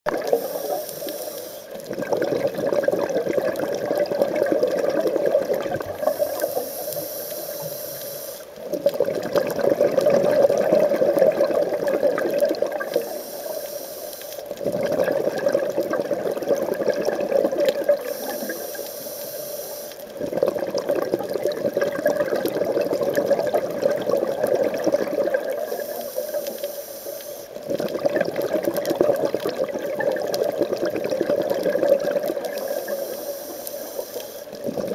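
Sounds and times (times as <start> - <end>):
bubbling exhaust underwater: 0.1 - 34.9
regulator hissing inhale: 0.3 - 1.8, 6.0 - 8.6, 12.8 - 14.5, 18.0 - 20.1, 25.6 - 27.6, 32.4 - 34.6.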